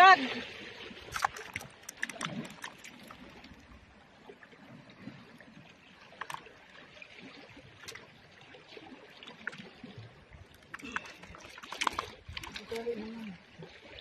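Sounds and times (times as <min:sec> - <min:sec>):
faint wash of water: 0:00.0 - 0:14.0
clicks and taps handling fish: 0:01.1 - 0:02.9.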